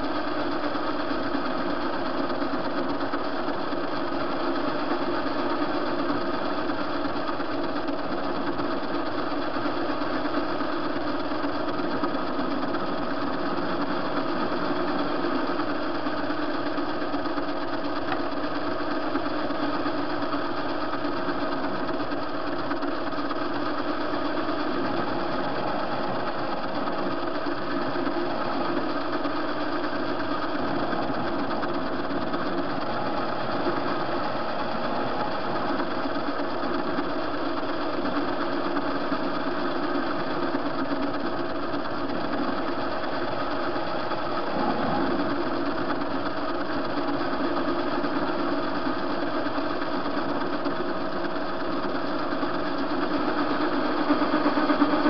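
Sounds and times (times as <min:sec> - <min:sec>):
constant machine whine: 0:00.0 - 0:55.0
metal lathe humming: 0:00.0 - 0:55.0.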